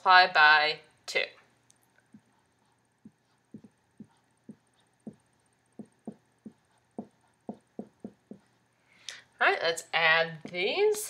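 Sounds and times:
marker writing on whiteboard: 0:02.1 - 0:08.7.

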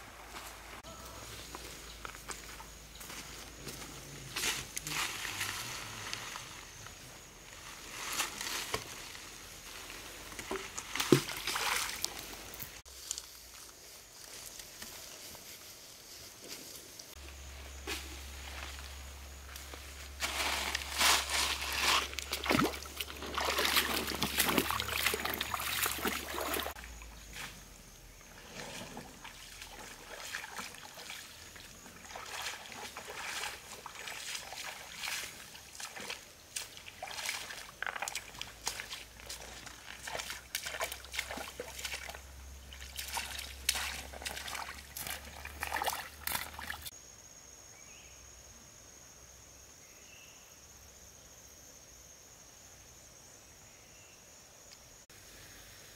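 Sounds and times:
footsteps wading through water: 0:07.9 - 0:12.8, 0:19.6 - 0:27.6, 0:28.4 - 0:46.9
water splashing: 0:09.8 - 0:12.8, 0:20.3 - 0:27.5, 0:28.3 - 0:46.9.

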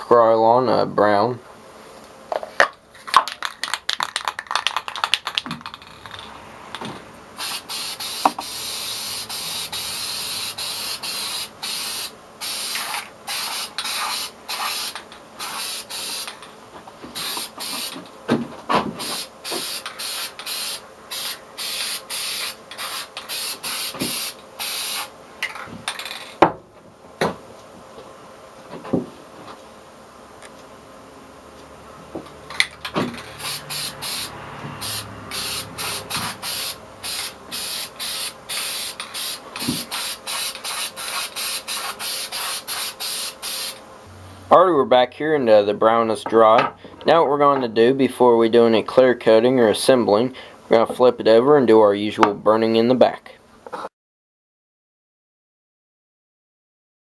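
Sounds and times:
aerosol can rattling: 0:03.0 - 0:06.3
spray paint hissing bursts: 0:07.4 - 0:16.5, 0:17.1 - 0:18.1, 0:19.0 - 0:25.1, 0:32.8 - 0:43.8.

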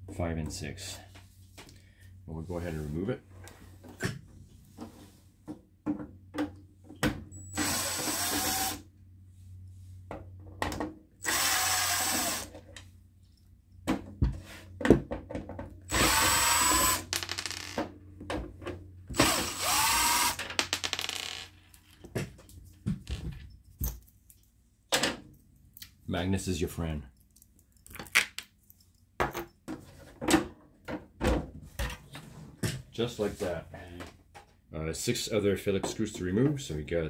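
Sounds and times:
cordless drill running: 0:07.5 - 0:08.8, 0:11.2 - 0:12.5, 0:15.9 - 0:17.1, 0:19.1 - 0:20.4.

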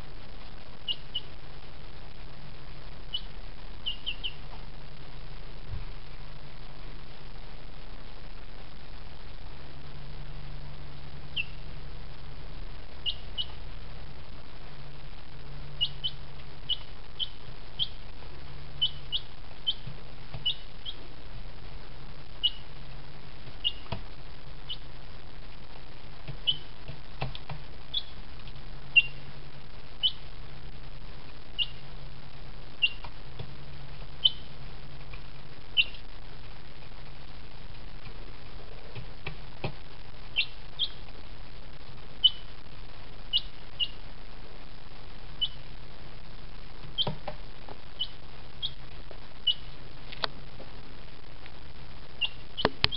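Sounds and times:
steady low hum: 0:00.0 - 0:52.9
chick peeping: 0:00.4 - 0:01.4, 0:03.0 - 0:04.6, 0:11.3 - 0:11.7, 0:13.0 - 0:13.7, 0:15.7 - 0:21.4, 0:22.4 - 0:22.8, 0:23.4 - 0:24.0, 0:24.6 - 0:25.0, 0:26.2 - 0:29.4, 0:30.0 - 0:30.4, 0:31.5 - 0:31.9, 0:32.8 - 0:33.2, 0:33.9 - 0:36.1, 0:38.9 - 0:41.1, 0:42.2 - 0:42.6, 0:43.3 - 0:44.0, 0:45.4 - 0:45.7, 0:46.8 - 0:49.8, 0:52.2 - 0:52.9.

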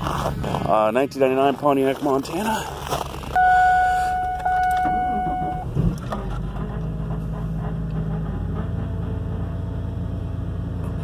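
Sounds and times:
car engine cranking and idling: 0:00.0 - 0:11.0
steady electronic tone: 0:03.4 - 0:05.7.

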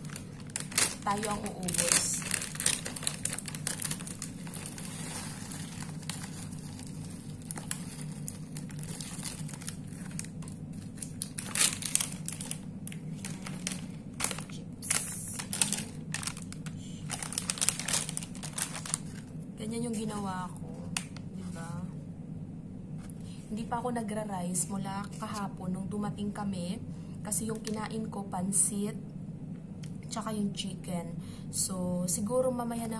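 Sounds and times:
foil snack bag crinkling: 0:00.0 - 0:19.4
steady low hum: 0:00.0 - 0:32.9.

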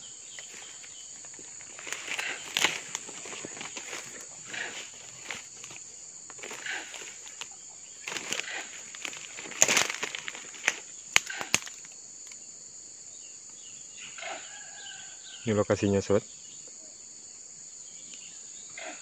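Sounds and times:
footsteps crunching through dry leaves: 0:00.0 - 0:12.0
insects droning: 0:00.0 - 0:19.0
twigs snapping: 0:00.3 - 0:12.4.

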